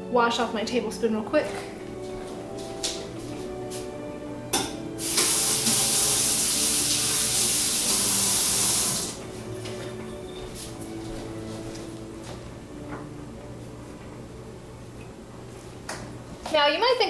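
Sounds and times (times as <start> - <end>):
kitchen faucet running: 5.0 - 9.2.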